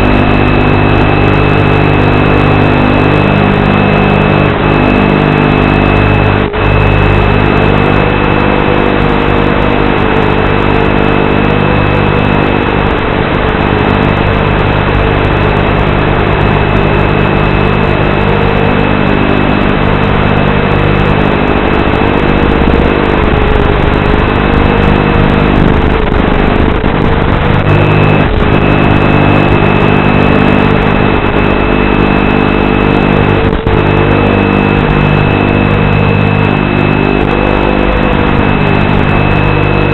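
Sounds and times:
microphone hiss: 17.9 - 31.4.

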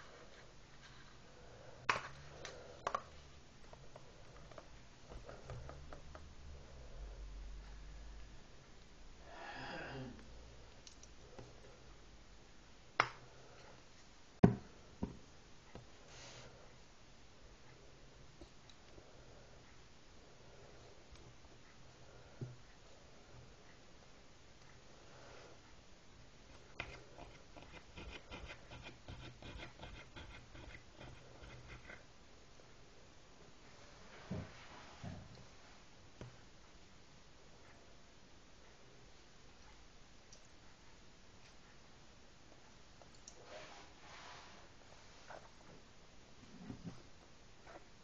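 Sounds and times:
rapid small scratches and ticks: 26.5 - 32.1.

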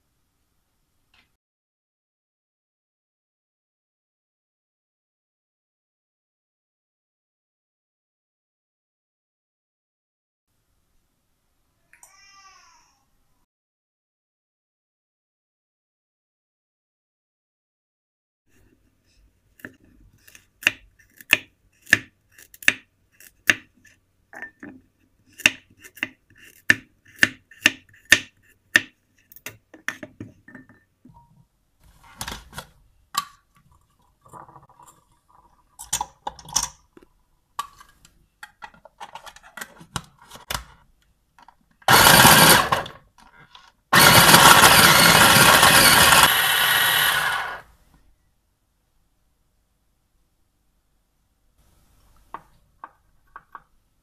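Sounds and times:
food chopper motor chopping: 41.9 - 43.0, 43.9 - 47.6.

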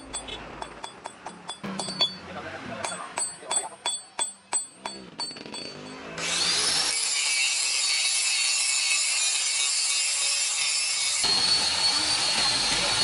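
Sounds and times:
angle grinder grinding steel: 4.9 - 13.0.

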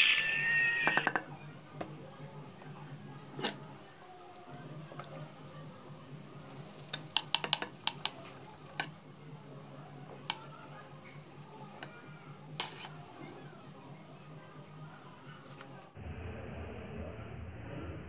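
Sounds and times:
clay rolling clicks and taps: 6.9 - 9.0
faint low hum: 16.0 - 18.0.

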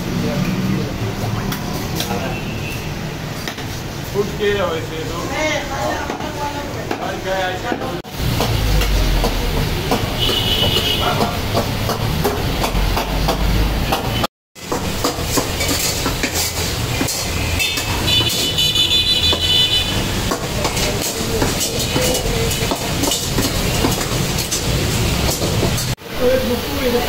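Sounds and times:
food sizzling in woks: 6.6 - 27.0
metal ladle scraping wok: 14.6 - 26.0.

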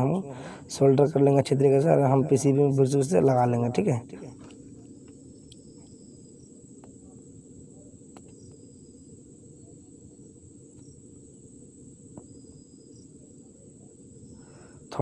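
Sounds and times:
thin high whine: 0.0 - 15.0.

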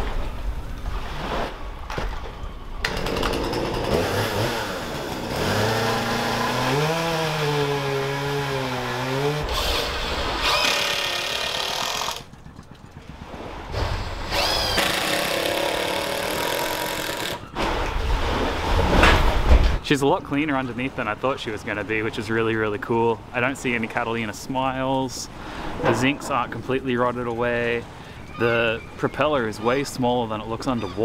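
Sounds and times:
small motor-driven tool droning: 13.8 - 16.4.

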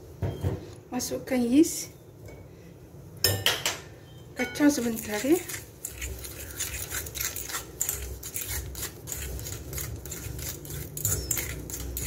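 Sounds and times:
spoon scraping and clinking glass bowl: 4.4 - 12.0.

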